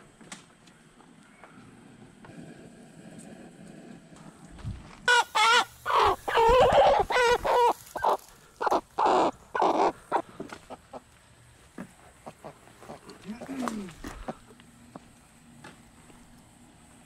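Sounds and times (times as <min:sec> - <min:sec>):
chicken squawking: 0:05.1 - 0:11.0.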